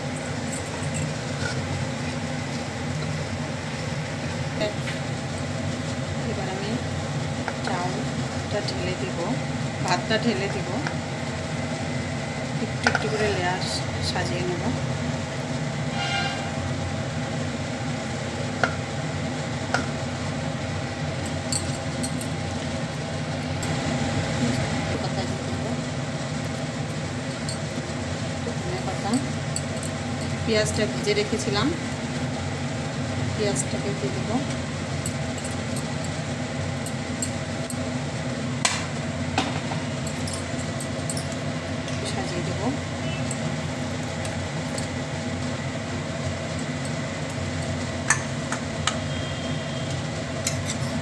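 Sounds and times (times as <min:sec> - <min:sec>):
steady hum: 0:00.0 - 0:51.0
vessel clinking against pot: 0:21.3 - 0:22.4, 0:40.1 - 0:41.4.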